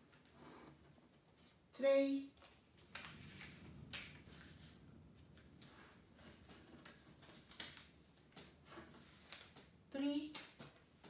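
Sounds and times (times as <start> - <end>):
paper rustling while folded: 2.4 - 11.0.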